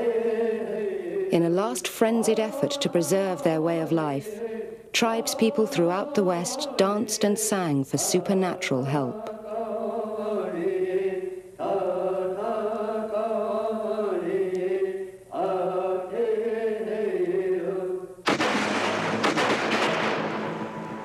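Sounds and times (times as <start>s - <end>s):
person chanting: 0.0s - 18.0s
harsh crackling noise: 18.3s - 21.0s.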